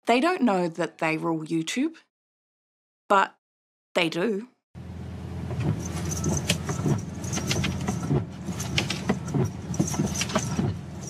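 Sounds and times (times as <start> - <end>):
car road and engine rumble: 4.8 - 11.0.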